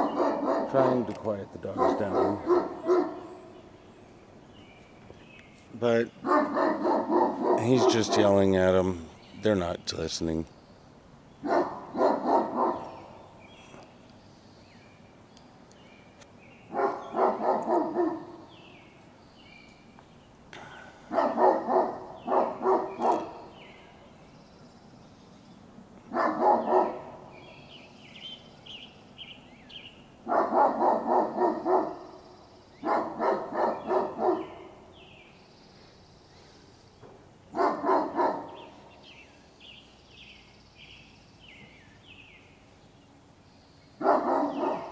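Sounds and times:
dogs barking: 0.0 - 3.6, 6.1 - 8.5, 11.4 - 13.2, 16.7 - 18.5, 21.1 - 23.7, 26.0 - 27.5, 30.2 - 32.2, 32.8 - 35.0, 37.5 - 39.1, 44.0 - 44.9.

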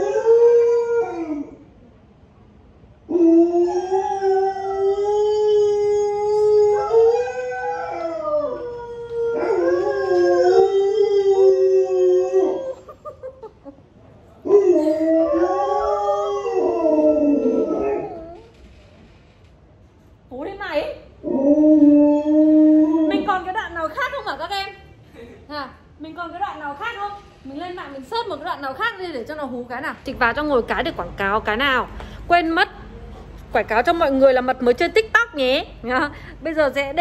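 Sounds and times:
wolf-like howls: 14.4 - 18.4, 21.2 - 23.4.

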